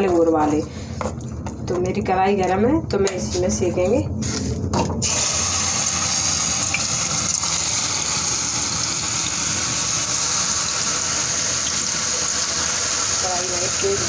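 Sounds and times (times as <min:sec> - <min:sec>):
batter sizzling in hot oil: 0:05.0 - 0:14.0.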